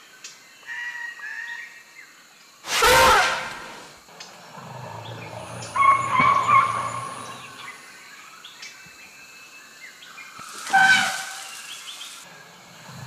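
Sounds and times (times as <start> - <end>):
high chirping animal calls: 5.2 - 7.8.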